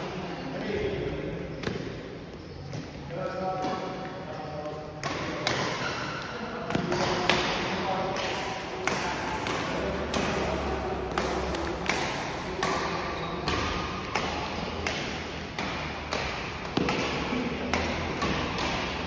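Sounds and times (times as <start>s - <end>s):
rackets striking shuttlecocks: 5.0s - 19.0s.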